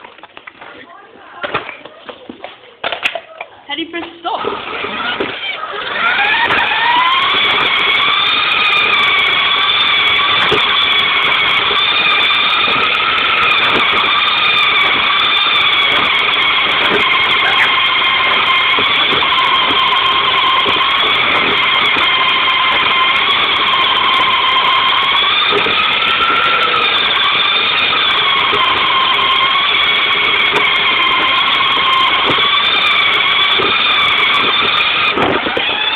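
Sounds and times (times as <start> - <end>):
toy car motor whining: 4.4 - 35.9.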